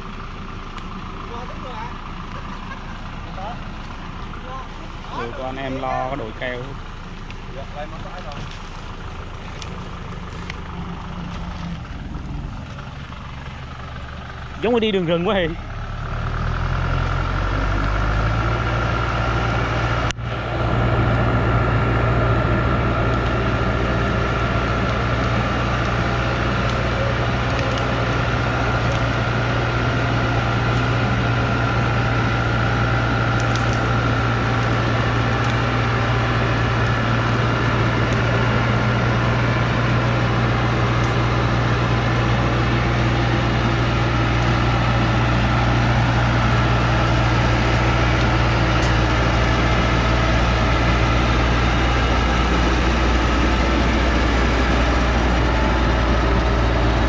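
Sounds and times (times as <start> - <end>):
truck diesel engine under load: 0.0 - 57.0
steady whine: 17.6 - 57.0.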